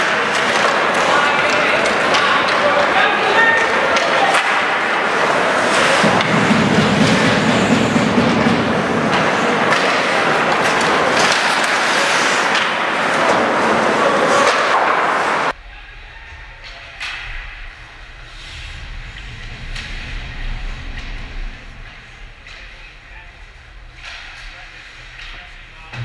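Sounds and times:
skates scraping ice: 0:00.0 - 0:06.3, 0:09.0 - 0:15.6
puck and sticks hitting boards: 0:00.0 - 0:07.1, 0:09.0 - 0:15.5
low hum: 0:05.7 - 0:09.6, 0:15.5 - 0:26.0.

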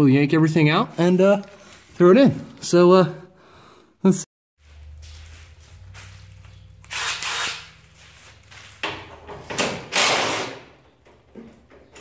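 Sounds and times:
cordless drill running: 0:06.9 - 0:07.7.

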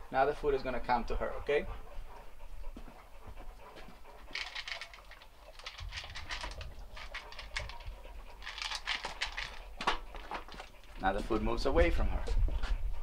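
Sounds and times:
dog crunching food: 0:04.3 - 0:10.8.

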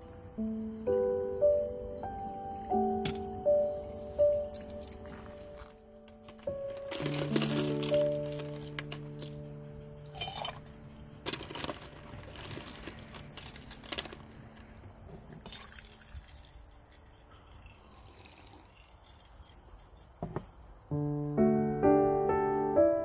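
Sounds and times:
outdoor ambience hiss: 0:00.0 - 0:23.0
spoon clinking against glass jar: 0:10.2 - 0:10.6.

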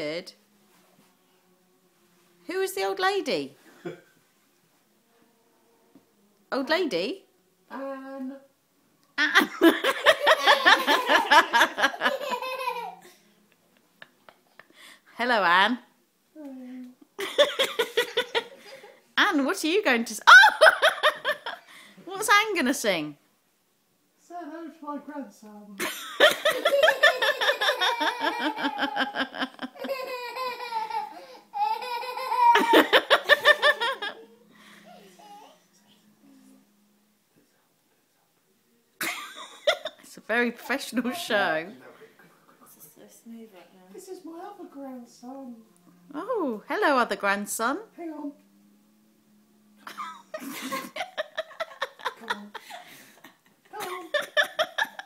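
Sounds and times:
child laughing: 0:09.2 - 0:13.1, 0:26.4 - 0:34.4, 0:53.7 - 0:55.0
person laughing hard: 0:25.9 - 0:31.1.

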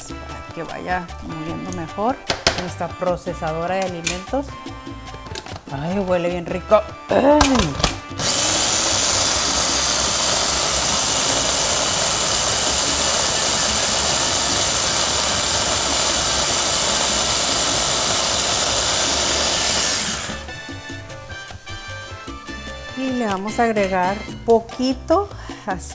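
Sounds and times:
food processor motor grinding: 0:07.4 - 0:21.0.

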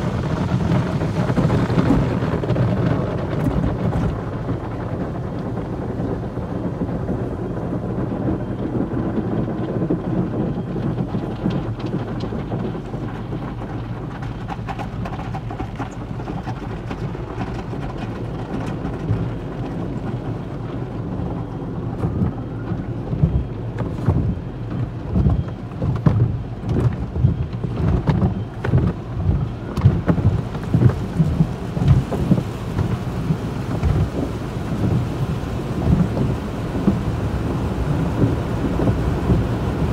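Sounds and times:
car wash spray on car body: 0:25.9 - 0:39.9.

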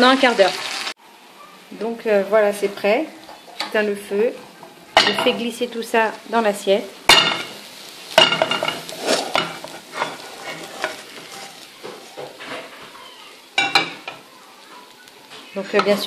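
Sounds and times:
oil sizzling in pan: 0:00.0 - 0:16.0
frying pan clinking: 0:03.2 - 0:05.7, 0:07.1 - 0:16.0
potato cake scraping pan: 0:08.4 - 0:13.1.

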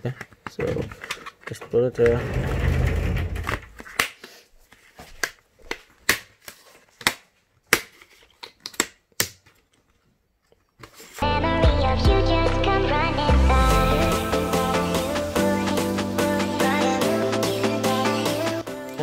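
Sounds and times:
music: 0:11.2 - 0:19.0.

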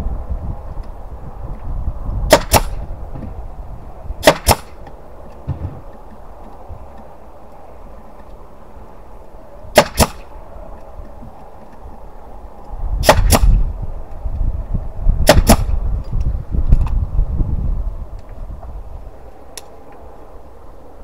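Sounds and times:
nail gun firing: 0:02.3 - 0:02.8, 0:04.2 - 0:04.8, 0:09.8 - 0:10.3, 0:13.0 - 0:13.6, 0:15.2 - 0:15.8
low rumble: 0:05.4 - 0:06.3.

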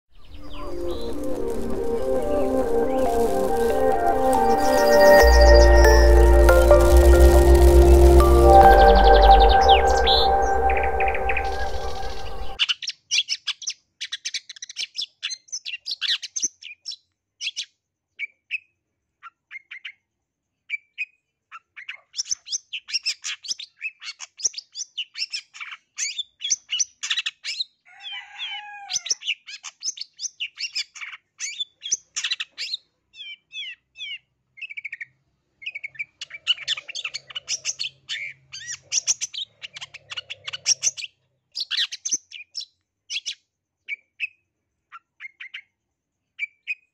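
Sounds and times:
bird singing chattering trills: 0:00.2 - 0:03.7, 0:04.3 - 0:12.6.

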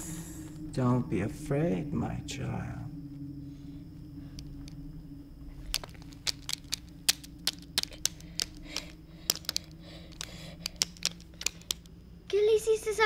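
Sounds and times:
low steady hum: 0:00.0 - 0:13.0
sharp clicks and snaps: 0:04.3 - 0:04.8, 0:05.6 - 0:12.4.

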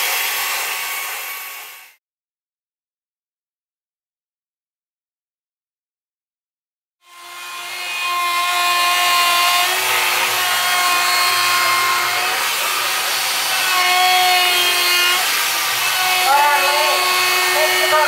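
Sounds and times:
electric grinder on wood: 0:00.0 - 0:02.0, 0:07.0 - 0:18.0.

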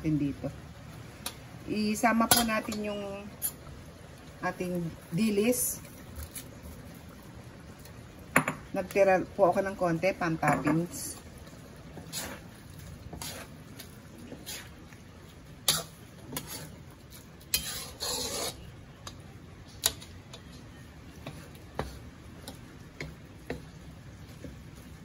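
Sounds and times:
utensils stirring stew in wok: 0:01.0 - 0:25.0
utensils clinking and scraping pan: 0:12.0 - 0:14.8, 0:15.6 - 0:18.7.

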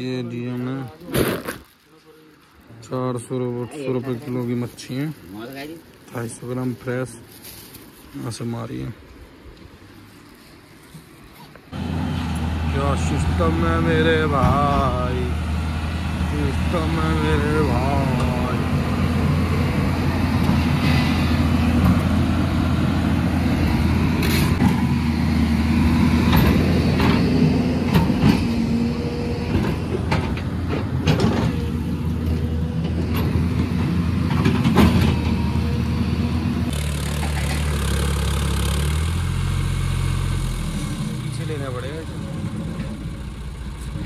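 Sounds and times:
vehicle engine running: 0:11.8 - 0:44.0.

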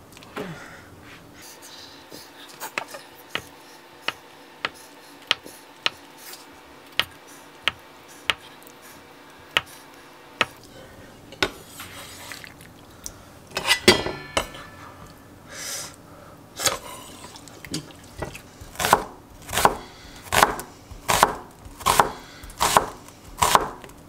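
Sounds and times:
knife and board clattering: 0:13.6 - 0:14.8.

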